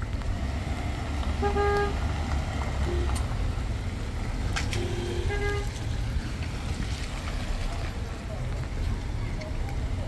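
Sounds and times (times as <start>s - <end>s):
traffic engine rumble: 0.0s - 10.0s
vehicle horn toots: 1.4s - 2.0s, 4.7s - 5.8s.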